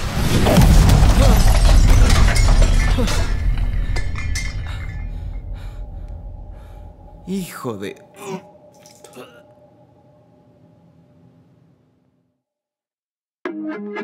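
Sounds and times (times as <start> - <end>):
glass-like shattering: 0.0 - 5.6.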